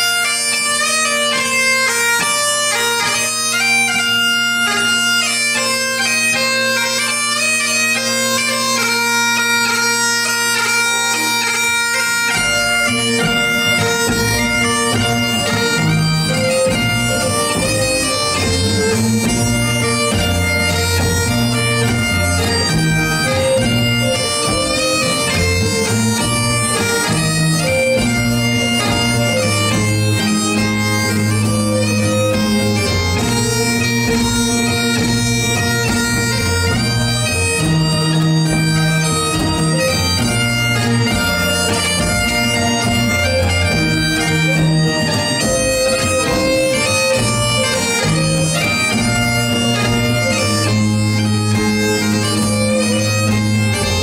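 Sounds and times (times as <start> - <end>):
bagpipes playing a march: 0.0 - 54.0
band with moving bass line: 0.0 - 54.0
fiddle: 0.0 - 54.0.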